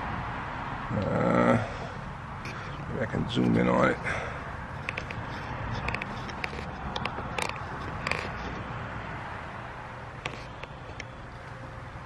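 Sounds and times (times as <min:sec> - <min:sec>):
camera clicks and creaks: 0:04.7 - 0:08.8, 0:10.1 - 0:11.5.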